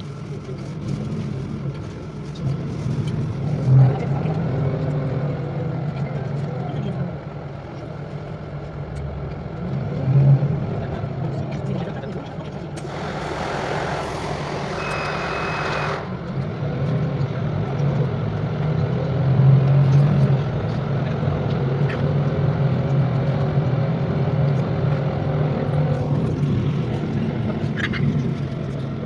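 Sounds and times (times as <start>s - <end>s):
vehicle interior drone: 0.0s - 29.0s
hiss: 12.8s - 16.0s
short high beep: 14.7s - 16.0s.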